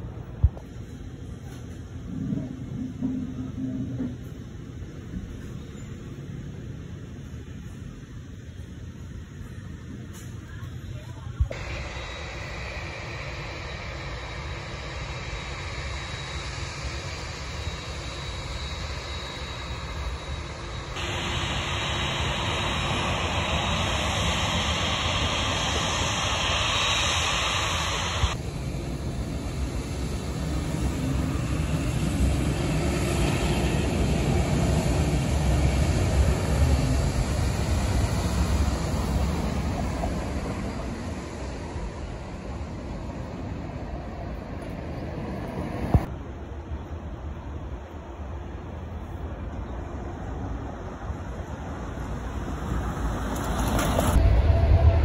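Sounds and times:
deep rumble: 11.5 - 46.1, 54.1 - 55.0
jet engine rushing: 11.5 - 46.1, 51.0 - 55.0.

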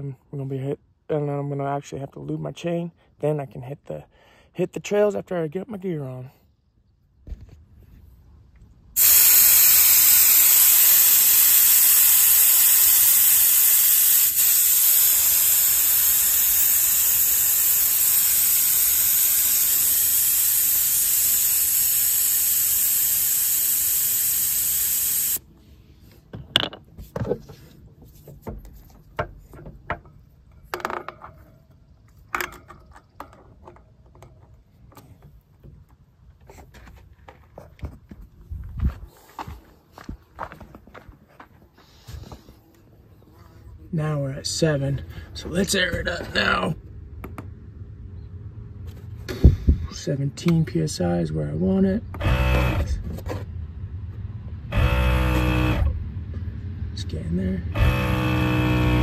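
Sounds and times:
air hissing from tire valve: 9.0 - 25.4.

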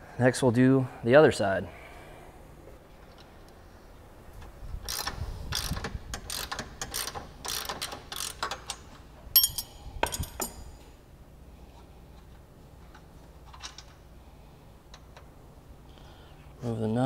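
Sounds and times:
ratchet wrench clicking: 4.8 - 10.6
sharp metallic clinks: 9.4 - 10.8.

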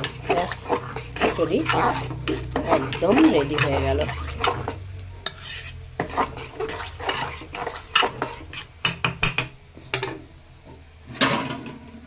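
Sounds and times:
metal spoon scraping metal pot: 0.0 - 9.4
spoon knocking pot: 8.8 - 10.2.

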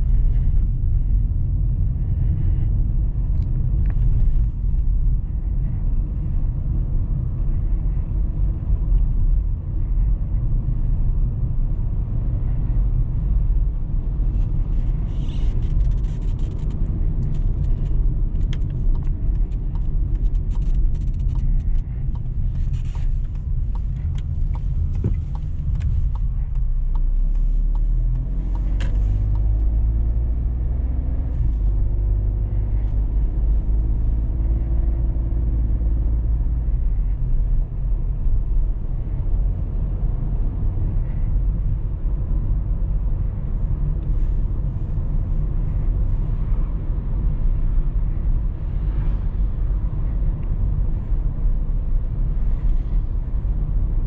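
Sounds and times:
car engine accelerating: 0.0 - 54.0
road and tyre rumble: 0.0 - 54.0.

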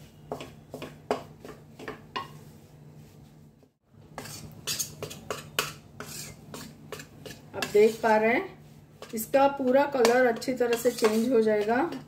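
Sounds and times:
metal spatula scraping steel pan: 4.2 - 8.2, 9.0 - 12.0.

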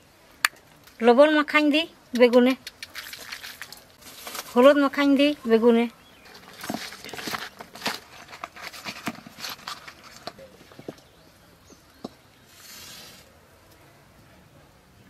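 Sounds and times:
match striking and hissing: 12.5 - 13.3.

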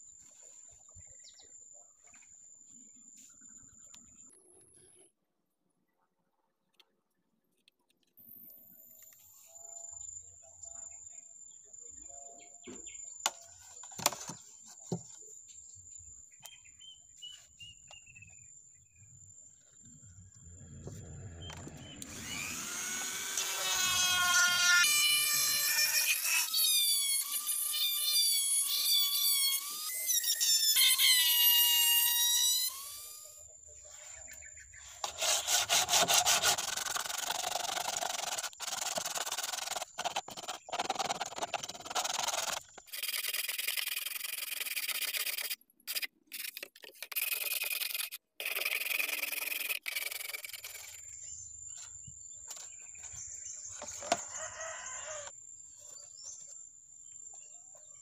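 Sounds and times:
rotary tool sanding drum whining: 21.4 - 33.2, 35.0 - 45.5
wooden block rubbing on pipe: 35.0 - 51.1.

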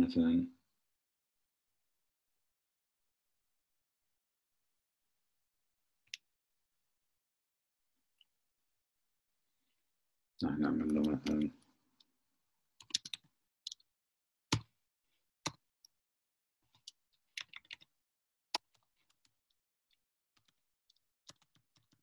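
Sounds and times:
typing on computer keyboard: 12.8 - 13.8, 21.3 - 22.0.

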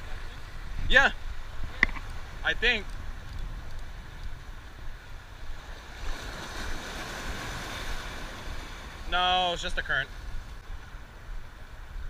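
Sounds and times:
wind rumble on microphone: 0.0 - 12.0
ocean waves washing over rocks: 5.3 - 11.0.

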